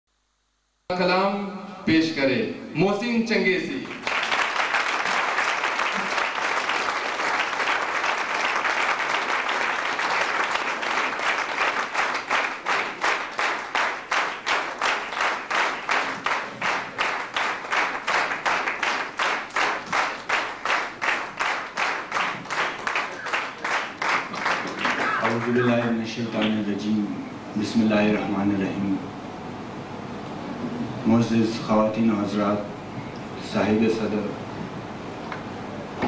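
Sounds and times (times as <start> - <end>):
rhythmic unison clapping: 3.8 - 26.6
audience applauding: 3.8 - 26.7.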